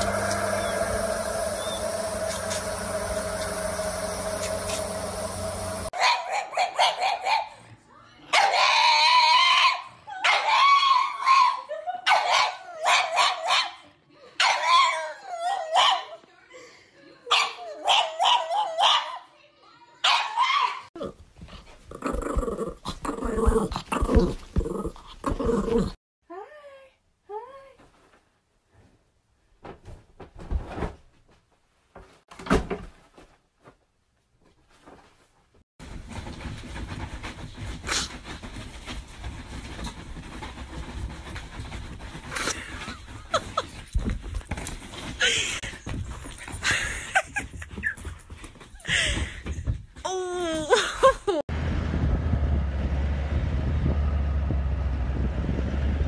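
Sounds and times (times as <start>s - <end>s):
dog howling: 0.0s - 5.9s
rustling: 34.4s - 48.8s.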